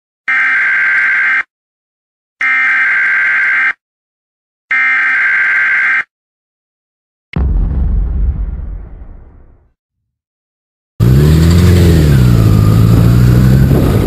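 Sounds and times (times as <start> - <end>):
buzzing alarm tones: 0.3 - 1.5, 2.4 - 3.8, 4.7 - 6.1.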